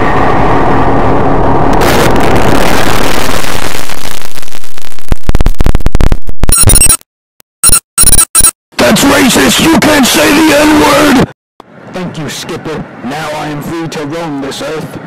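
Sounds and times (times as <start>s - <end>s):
harsh distorted noise: 0.0s - 7.0s, 7.6s - 11.3s.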